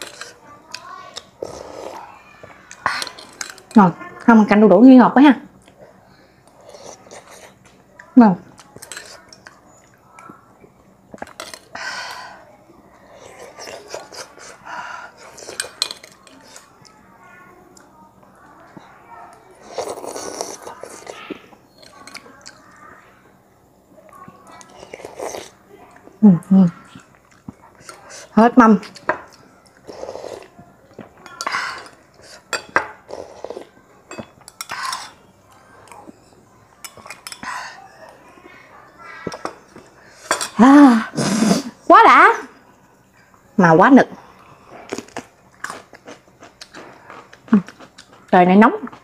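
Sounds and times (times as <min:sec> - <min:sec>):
sips and slurps: 0:19.6 - 0:21.4, 0:24.7 - 0:25.6
spoon clinking against glass bowl: 0:31.2 - 0:33.0, 0:36.8 - 0:37.5.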